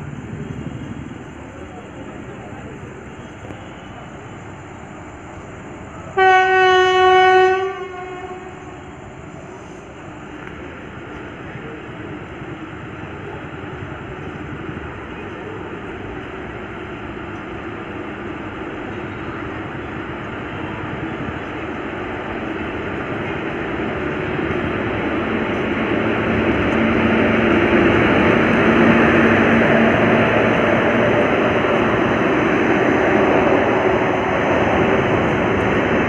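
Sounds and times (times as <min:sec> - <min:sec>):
train wheels rumbling on rails: 0:00.0 - 0:36.0
locomotive low hum: 0:08.4 - 0:36.0.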